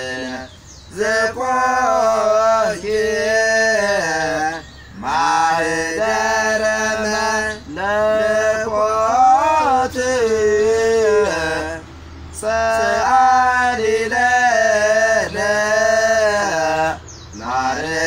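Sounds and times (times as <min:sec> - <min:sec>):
man chanting: 0:00.0 - 0:11.8, 0:12.4 - 0:18.0.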